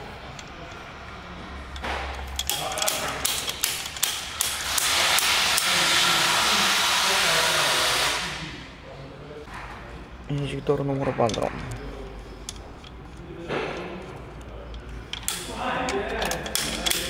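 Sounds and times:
pressurised jet hissing: 4.4 - 8.6.

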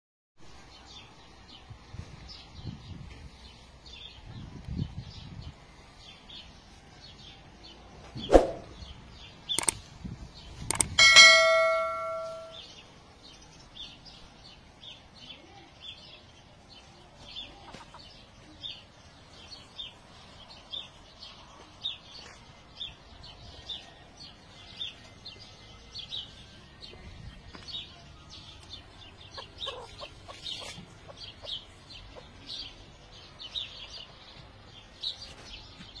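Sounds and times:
chickens chirping: 17.2 - 20.1, 27.8 - 34.5
chickens clucking: 17.4 - 18.2, 29.2 - 32.7.

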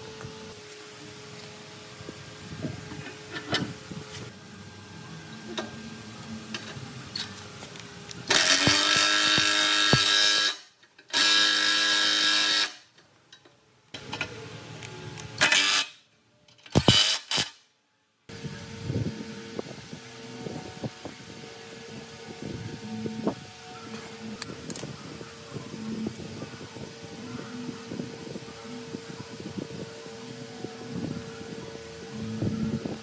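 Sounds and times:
power tool running in bursts: 8.2 - 12.8.

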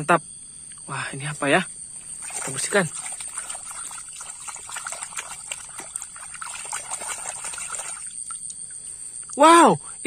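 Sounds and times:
shallow water splashing: 1.9 - 8.8.

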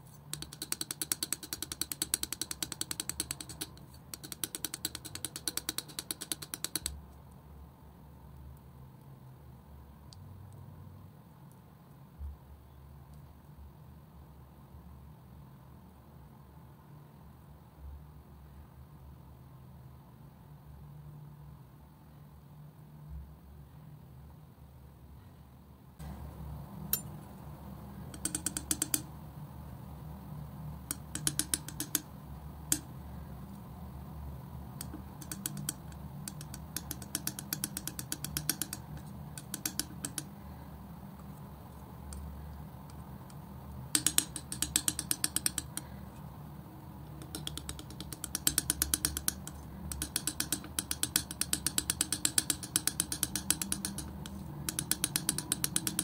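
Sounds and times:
steady low hum: 0.0 - 19.3, 25.0 - 56.0.

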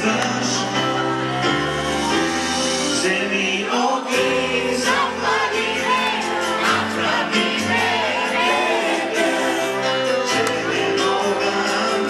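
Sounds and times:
man singing into a microphone: 0.0 - 1.3, 2.9 - 5.2, 8.6 - 12.0
amplified backing music: 0.0 - 12.0.

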